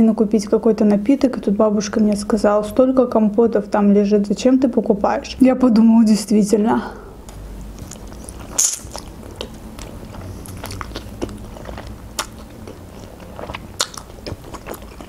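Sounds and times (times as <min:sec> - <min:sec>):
wet chewing: 0:07.6 - 0:15.0.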